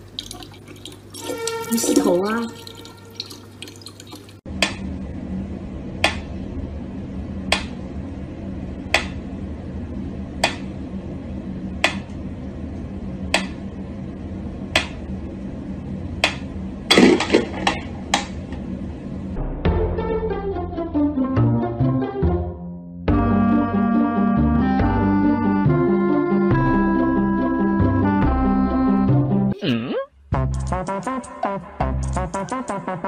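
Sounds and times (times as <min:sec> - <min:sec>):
steady low hum: 0:04.4 - 0:19.7.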